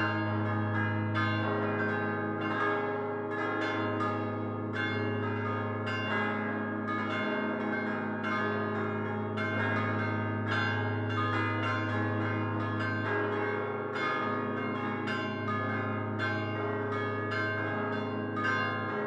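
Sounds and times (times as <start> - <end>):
church bells pealing: 0.0 - 19.0.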